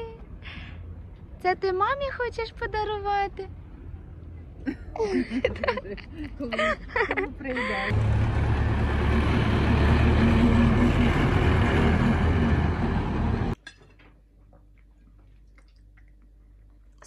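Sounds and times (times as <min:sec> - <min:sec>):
tractor engine rumbling: 0:06.7 - 0:13.6.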